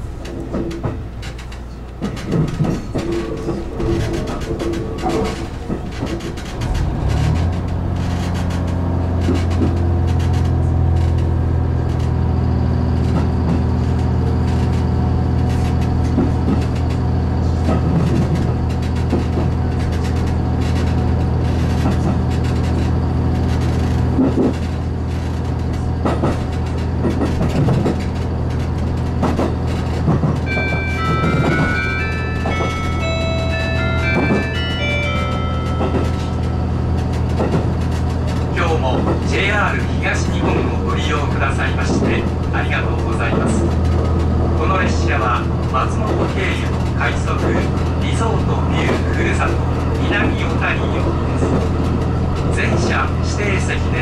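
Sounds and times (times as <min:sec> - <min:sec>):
railcar engine drone: 0:00.0 - 0:54.0
wheels clicking over rail joints: 0:00.1 - 0:54.0
chime melody: 0:30.5 - 0:37.0.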